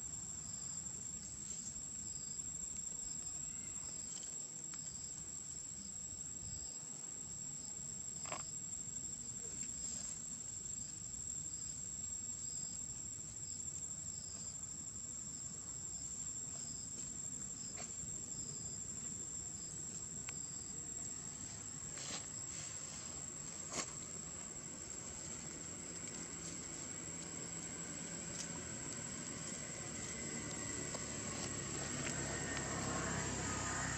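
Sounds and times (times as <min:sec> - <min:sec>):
insects trilling high-pitched: 0:00.1 - 0:17.0, 0:17.6 - 0:33.9
pulsing insect call: 0:17.6 - 0:33.9.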